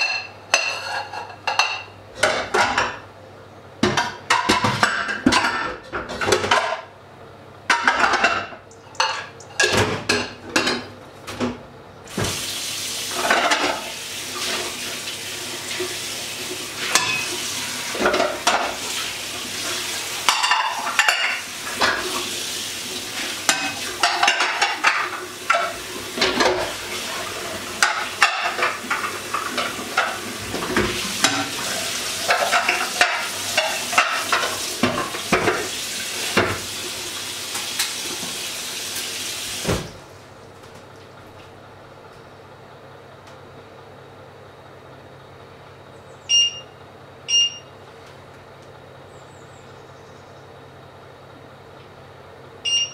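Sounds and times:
pans and utensils clattering: 0:00.0 - 0:03.0, 0:03.8 - 0:06.9, 0:07.7 - 0:12.4, 0:13.1 - 0:14.8, 0:16.8 - 0:22.4, 0:23.0 - 0:36.9
frying sizzle: 0:12.1 - 0:39.9
utensils stirring and clinking: 0:16.8 - 0:18.8, 0:19.6 - 0:22.2, 0:23.2 - 0:27.2, 0:27.8 - 0:35.6.

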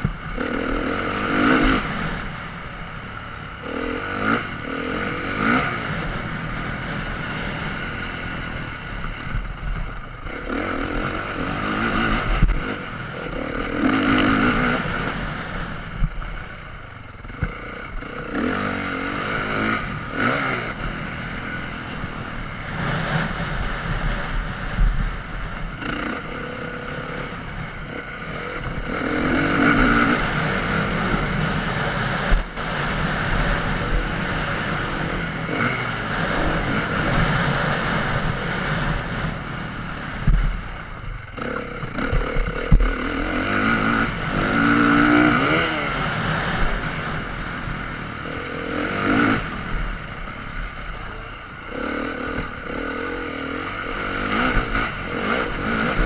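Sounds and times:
motocross bike engine revving: 0:00.0 - 0:56.0
wind on microphone: 0:19.4 - 0:56.0.

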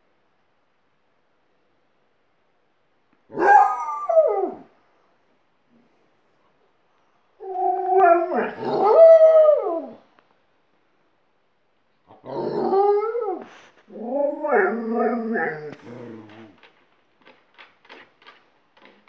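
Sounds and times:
dogs howling: 0:03.3 - 0:04.7, 0:07.4 - 0:10.0, 0:12.3 - 0:16.6.

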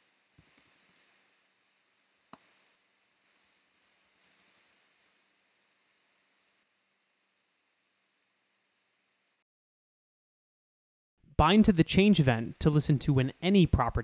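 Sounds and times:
keyboard typing: 0:02.3 - 0:05.1, 0:12.0 - 0:13.8
low hiss: 0:11.3 - 0:14.0.

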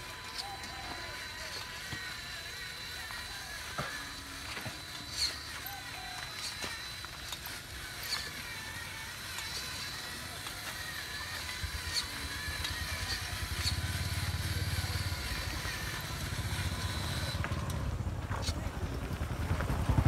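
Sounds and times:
electric motor whine: 0:00.0 - 0:19.0
low rumble of toy truck: 0:00.0 - 0:20.0.

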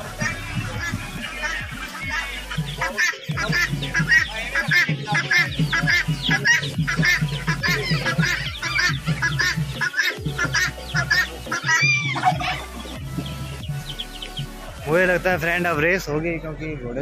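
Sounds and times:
poultry and birds calling: 0:00.0 - 0:17.0.

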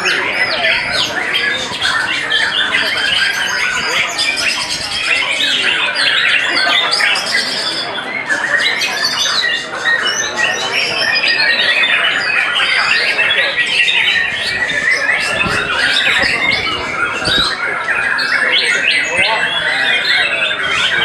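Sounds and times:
songbirds singing: 0:00.0 - 0:21.0.

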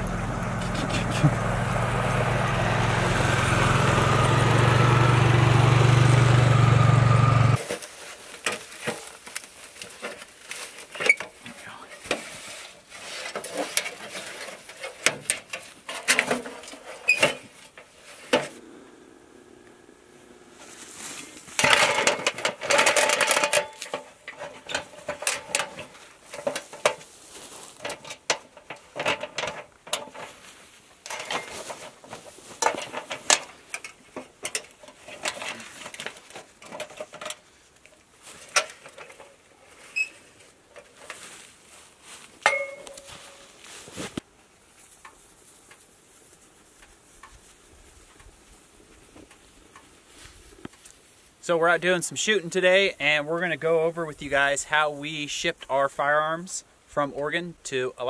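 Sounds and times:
footsteps crunching frosty grass: 0:18.0 - 0:21.7, 0:25.9 - 0:28.0, 0:39.6 - 0:51.6
chains clanking on steel stand: 0:21.6 - 0:26.5, 0:31.0 - 0:31.6.

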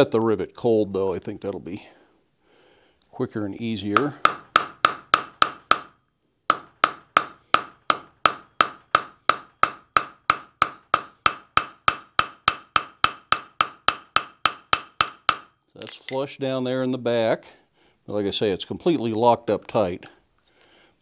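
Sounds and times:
hammer striking rivet on anvil: 0:04.0 - 0:16.0.

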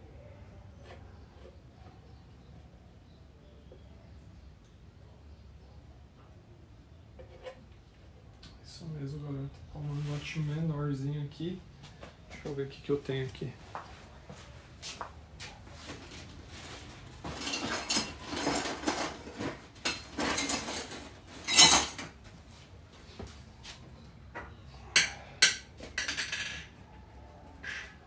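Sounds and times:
rustling and clattering of parts: 0:14.9 - 0:26.8.

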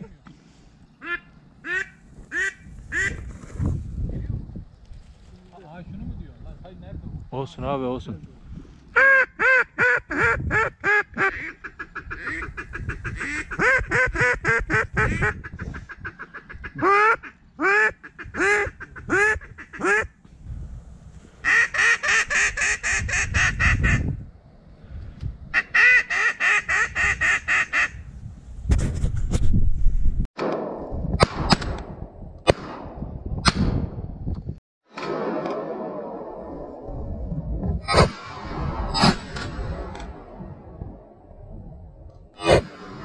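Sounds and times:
low wind rumble: 0:00.0 - 0:34.6, 0:35.4 - 0:43.0
duck quacking: 0:09.0 - 0:20.1.

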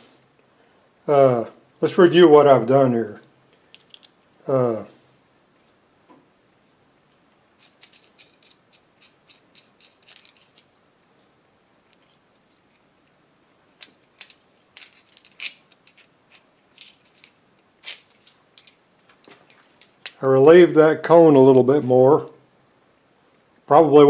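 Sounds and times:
light metallic clinks: 0:07.6 - 0:10.8, 0:13.8 - 0:20.2.

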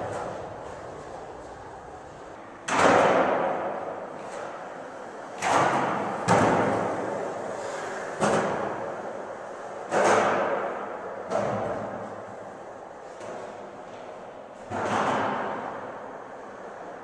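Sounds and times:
skateboard wheels rolling: 0:00.0 - 0:17.0
skateboard clacking on concrete: 0:02.6 - 0:04.7.

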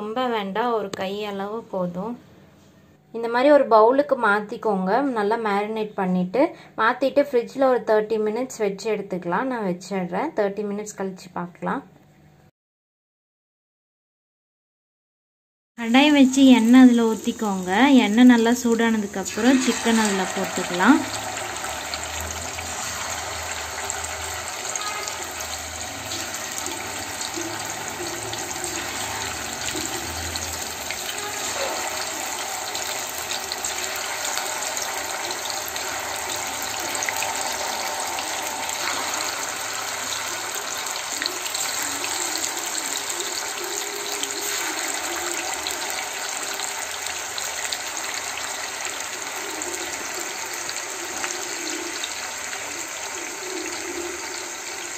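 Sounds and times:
chicken deep-frying in oil: 0:15.8 - 0:54.9.

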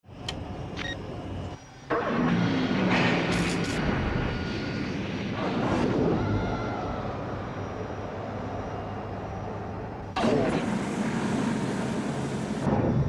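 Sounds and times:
low hum: 0:00.0 - 0:13.0
mechanical roar: 0:01.8 - 0:11.8.

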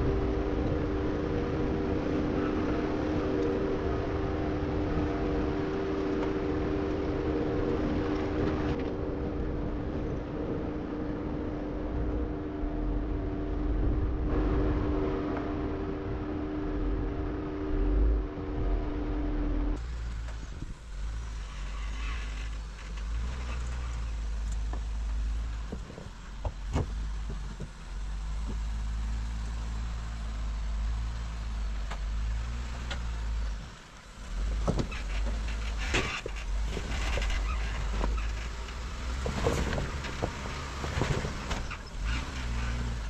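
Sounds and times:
high steady hum: 0:00.0 - 0:19.8
engine running low: 0:00.0 - 0:43.0
knocks and clunks: 0:22.1 - 0:27.8, 0:34.5 - 0:42.2.

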